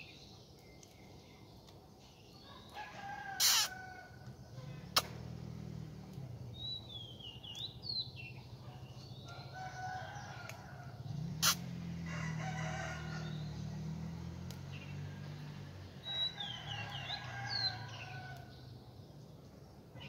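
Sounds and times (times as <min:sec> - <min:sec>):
small bird chirping: 0:00.0 - 0:11.9, 0:13.1 - 0:20.0
rooster crowing: 0:02.6 - 0:04.2, 0:09.3 - 0:13.9, 0:16.0 - 0:18.5
sharp clicks: 0:03.4 - 0:05.4.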